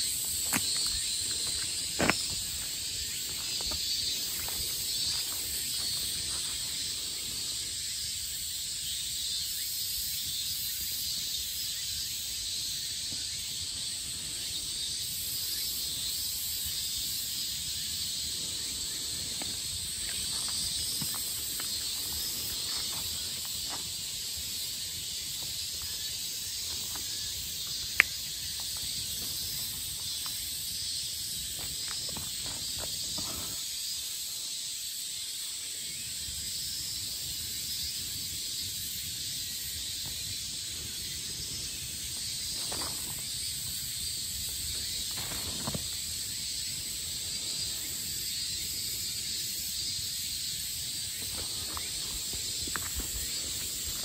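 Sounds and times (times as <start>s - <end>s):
insects chorus: 0.0s - 54.0s.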